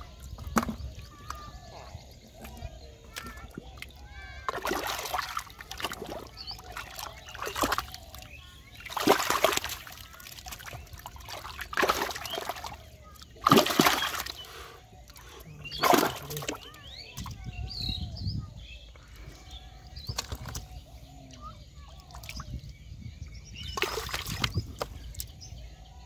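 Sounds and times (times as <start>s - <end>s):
hand splashing muddy water: 2.3s - 16.8s, 23.6s - 25.4s.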